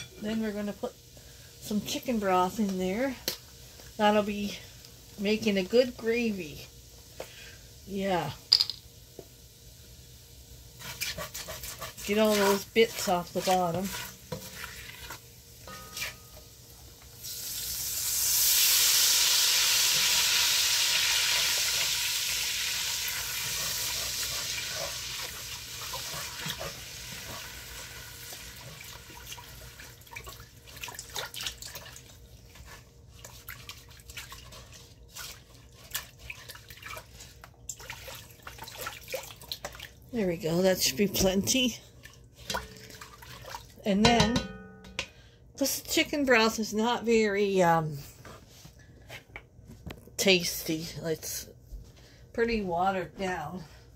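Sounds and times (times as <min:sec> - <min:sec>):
spatula scraping a pot: 0:10.8 - 0:16.4, 0:23.1 - 0:29.4.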